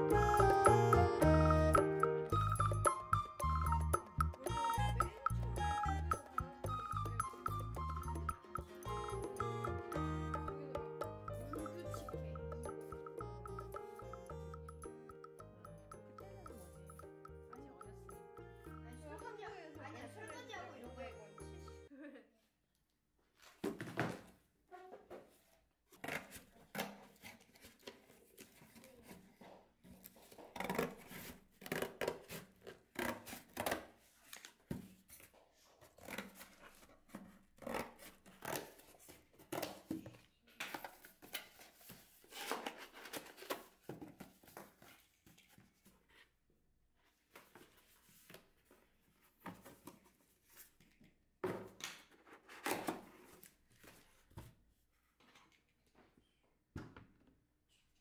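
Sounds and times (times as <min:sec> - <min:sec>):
scissors cutting cardboard: 0:29.9 - 0:34.1.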